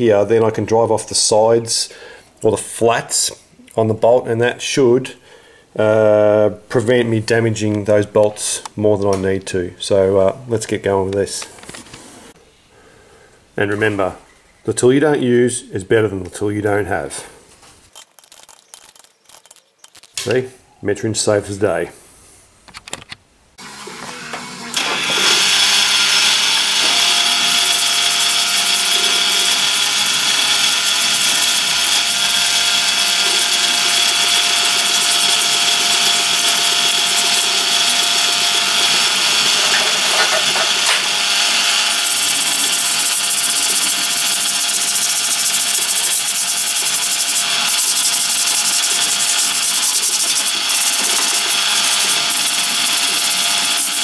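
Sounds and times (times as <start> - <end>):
parts washer machine running: 23.6 - 54.0.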